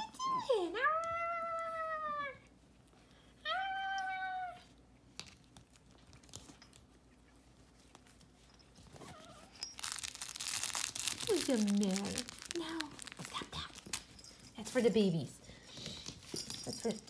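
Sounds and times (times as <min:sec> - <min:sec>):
puppy whining: 0:00.0 - 0:02.6, 0:03.4 - 0:05.0, 0:06.2 - 0:11.6.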